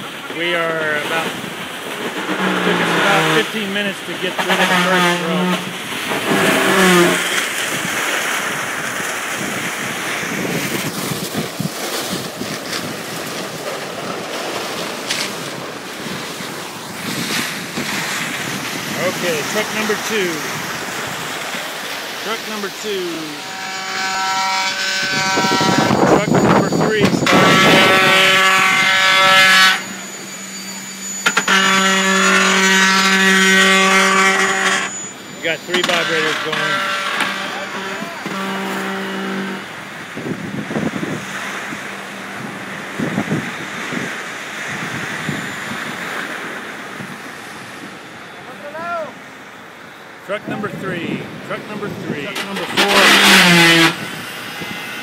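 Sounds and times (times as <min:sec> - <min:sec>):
wet concrete rushing through hose: 0:00.0 - 0:23.9, 0:51.6 - 0:55.0
concrete vibrator humming: 0:01.2 - 0:48.6.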